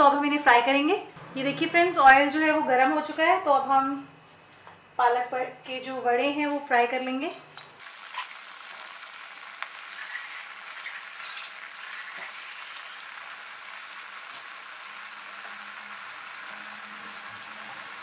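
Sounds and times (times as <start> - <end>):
food sizzling in hot oil: 7.8 - 18.0.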